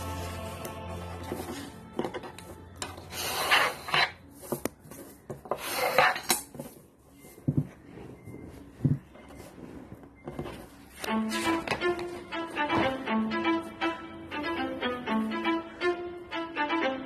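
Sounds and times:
paper rasping on wooden table: 0:03.1 - 0:06.4.

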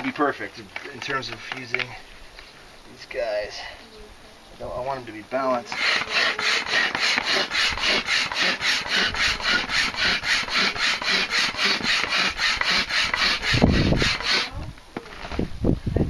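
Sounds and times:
hand pump strokes rushing air: 0:05.7 - 0:14.6.

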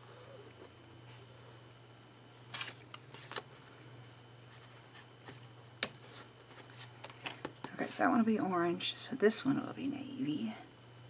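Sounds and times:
paper rustling: 0:02.5 - 0:03.5.

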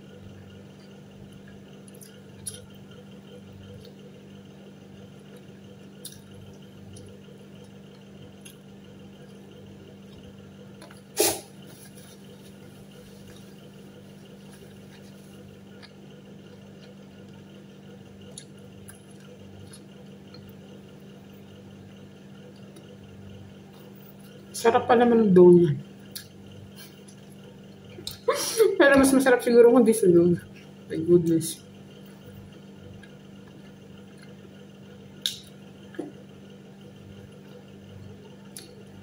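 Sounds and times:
person chewing: 0:00.7 - 0:02.8, 0:05.3 - 0:17.5, 0:18.1 - 0:20.8, 0:32.1 - 0:36.0.

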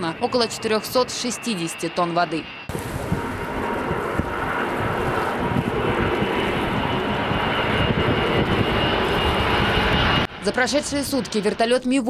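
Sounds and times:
jet aircraft flying overhead: 0:00.0 - 0:12.0.

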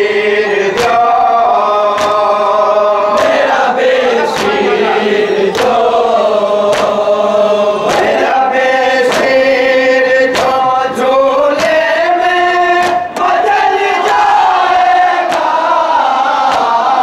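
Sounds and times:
men chanting a lament in chorus: 0:00.0 - 0:17.0
hands slapping chests: 0:00.7 - 0:04.8, 0:05.4 - 0:06.0, 0:06.6 - 0:07.1, 0:07.8 - 0:09.6, 0:10.2 - 0:10.7, 0:11.5 - 0:12.0, 0:12.7 - 0:14.2, 0:14.8 - 0:15.6, 0:16.4 - 0:17.0.

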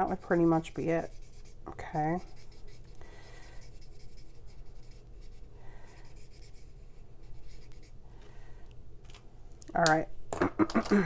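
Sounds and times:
marker scratching on card: 0:00.1 - 0:08.0.

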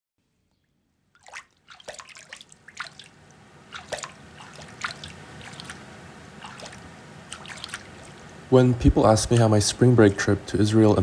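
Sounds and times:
water dripping and splashing in a tray: 0:01.1 - 0:08.4
faint watery wash: 0:01.1 - 0:11.0.

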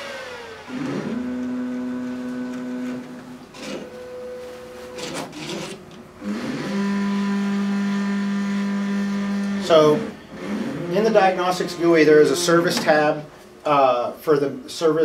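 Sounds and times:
motor whine: 0:00.0 - 0:05.2, 0:06.2 - 0:12.8
printer drive motors humming: 0:00.4 - 0:13.3.

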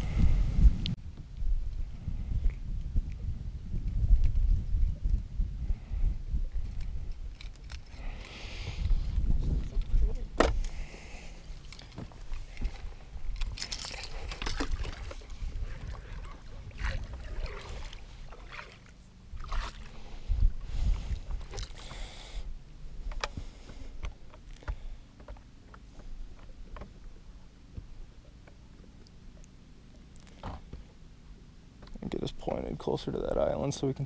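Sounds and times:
fishing tackle clicking and rattling: 0:13.3 - 0:15.2.

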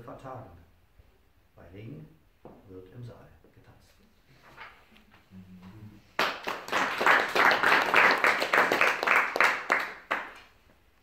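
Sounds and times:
audience applauding: 0:06.2 - 0:10.5.

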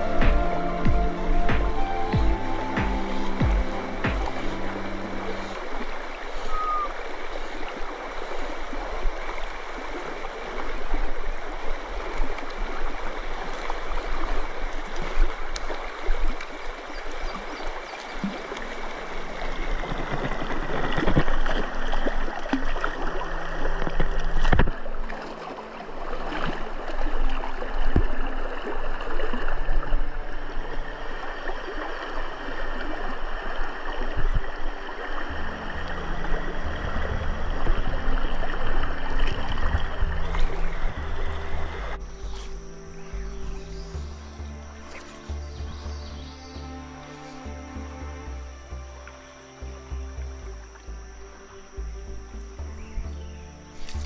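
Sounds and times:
water rushing over stream riffle: 0:00.0 - 0:43.0.

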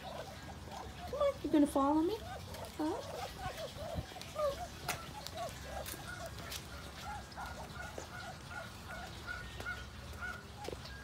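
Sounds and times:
ducks giving soft calls: 0:00.0 - 0:11.0.

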